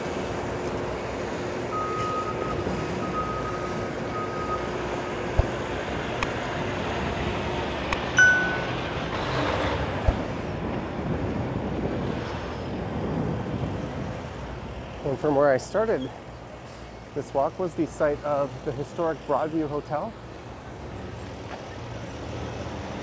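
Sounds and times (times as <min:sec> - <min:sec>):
city street traffic: 0:00.0 - 0:23.0
metallic clink: 0:08.2 - 0:08.9
broken high tone: 0:08.2 - 0:09.1.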